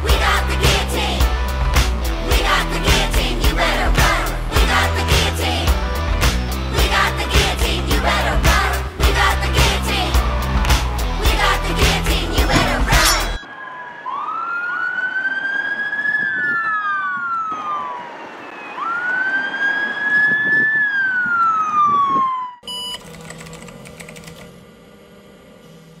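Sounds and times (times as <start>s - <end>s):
siren wailing: 13.0s - 22.7s.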